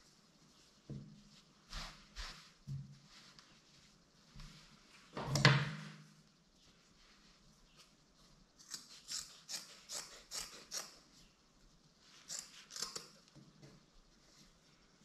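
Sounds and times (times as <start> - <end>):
scissors cutting fabric: 8.6 - 11.0, 12.2 - 13.2.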